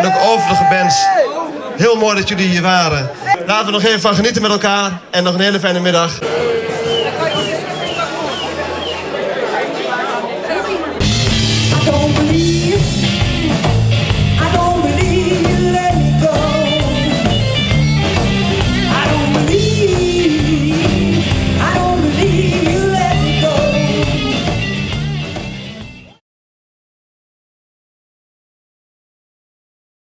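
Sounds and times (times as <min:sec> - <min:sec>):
blues rock band playing: 0:06.2 - 0:09.6, 0:10.8 - 0:26.2
woman singing: 0:14.4 - 0:16.9.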